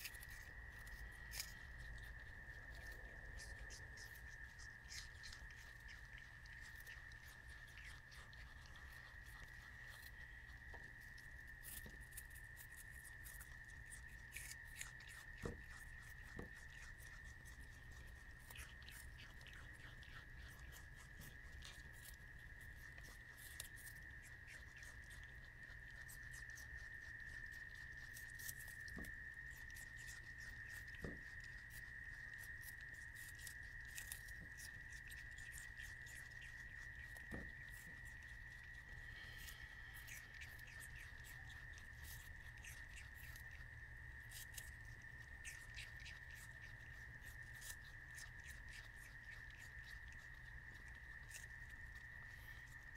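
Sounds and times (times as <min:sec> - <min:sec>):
possums crunching apple: 0:00.0 - 0:52.9
low hum: 0:27.3 - 0:47.4.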